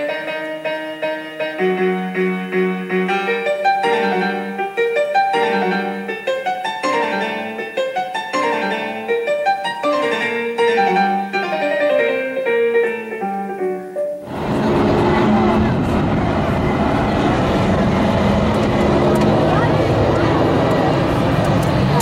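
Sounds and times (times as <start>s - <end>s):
solo piano music: 0.0s - 18.5s.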